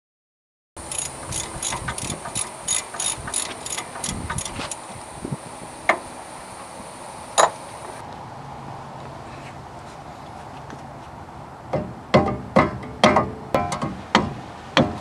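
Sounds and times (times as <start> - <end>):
sharp metal clinks: 0.8 - 4.8
socket ratchet clicking: 0.8 - 4.8.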